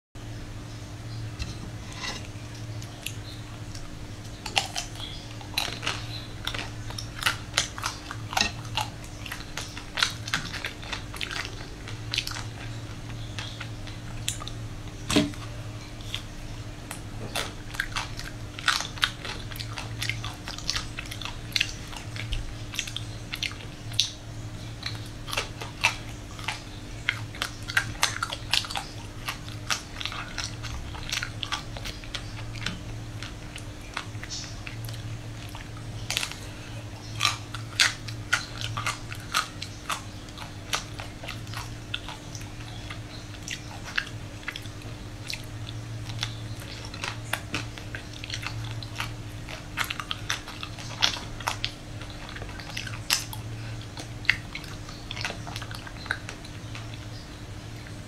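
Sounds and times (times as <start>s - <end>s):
low steady hum: 0.2s - 58.0s
chewing: 1.3s - 58.0s.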